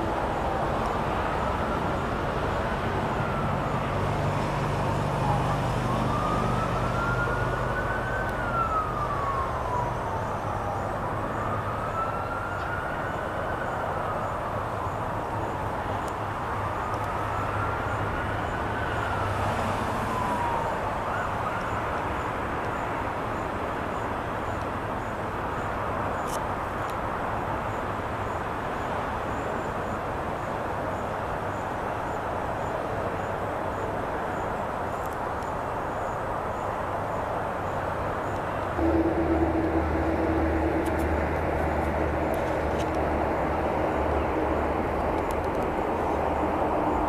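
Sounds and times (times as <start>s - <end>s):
emergency vehicle siren wailing: 0.0s - 26.4s, 27.4s - 47.0s
steady low rumble: 38.7s - 47.0s.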